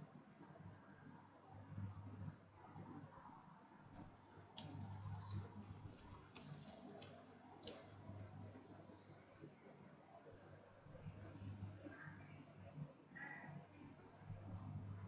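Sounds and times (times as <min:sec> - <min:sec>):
low steady hum: 0:00.0 - 0:15.0
keyboard typing: 0:04.5 - 0:08.2.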